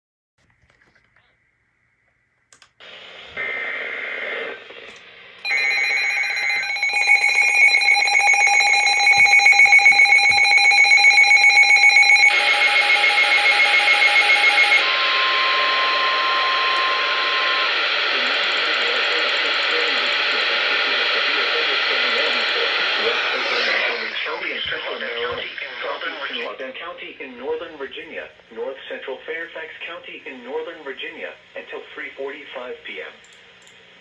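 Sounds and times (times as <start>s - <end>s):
pulsing electronic alarm: 5.4s - 20.4s
steady warning alert tone: 5.5s - 14.8s.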